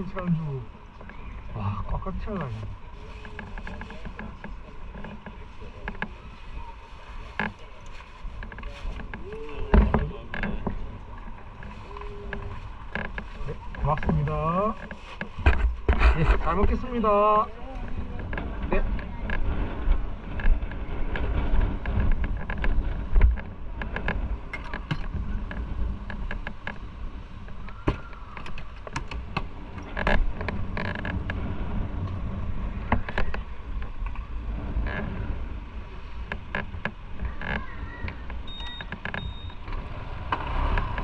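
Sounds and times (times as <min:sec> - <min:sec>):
wind on microphone: 0:00.0 - 0:41.0
small clicks and rattles: 0:02.2 - 0:06.2, 0:07.2 - 0:41.0
motorcycle engine riding off: 0:38.9 - 0:41.0.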